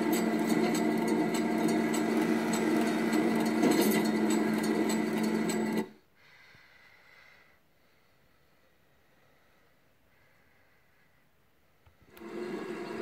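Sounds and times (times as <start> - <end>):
small electric motor whirring: 0.0 - 5.9.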